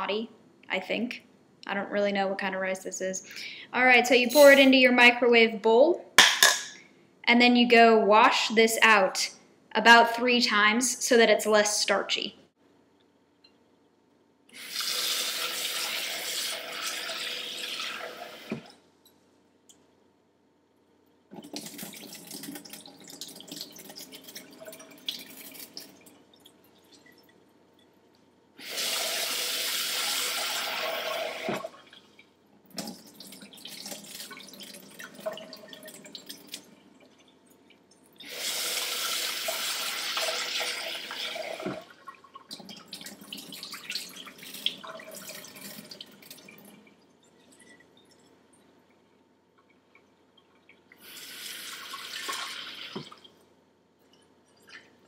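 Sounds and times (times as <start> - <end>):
faucet running into a bowl: 14.6 - 18.7, 38.2 - 46.7, 50.9 - 53.3
water sloshing and pouring: 21.3 - 28.0, 30.6 - 38.4, 39.4 - 53.4, 54.0 - 55.0.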